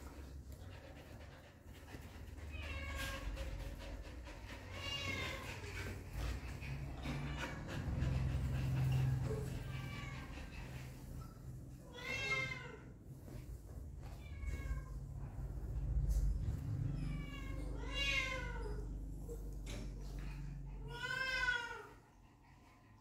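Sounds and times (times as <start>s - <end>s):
puppies whining and whimpering: 2.0s - 11.2s, 11.8s - 12.6s, 16.3s - 23.0s
low rumble: 14.6s - 18.0s.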